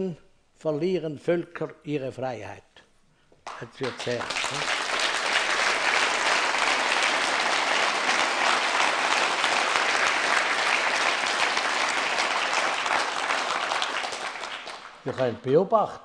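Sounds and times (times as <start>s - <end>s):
audience applauding: 3.4s - 15.5s.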